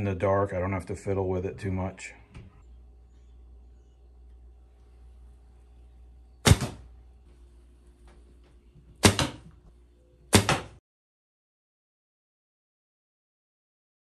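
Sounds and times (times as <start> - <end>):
faint low hum: 0.0 - 10.3
arrow knock: 6.4 - 6.8, 9.0 - 9.5, 10.3 - 10.8.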